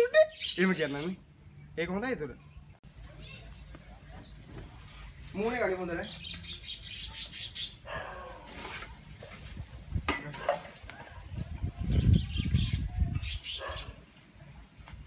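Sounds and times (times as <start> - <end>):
birds chirping: 0.0 - 8.4, 10.9 - 14.1.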